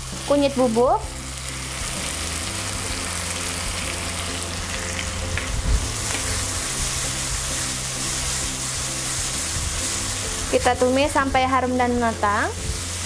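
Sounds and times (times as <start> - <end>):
spice paste sizzling in oil: 0.0 - 13.0
spatula scraping wok: 1.2 - 11.4.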